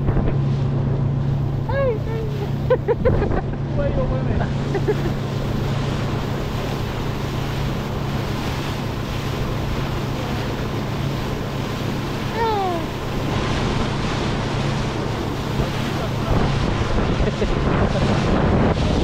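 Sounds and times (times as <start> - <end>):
motorboat engine hum: 0.0 - 19.0
water along the hull: 0.0 - 19.0
wind on microphone: 0.0 - 19.0.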